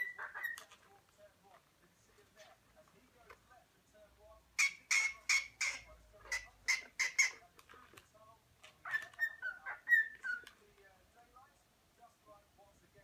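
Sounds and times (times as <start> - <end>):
cockatiel chirping: 0.0 - 0.8, 4.6 - 7.4, 8.8 - 10.6.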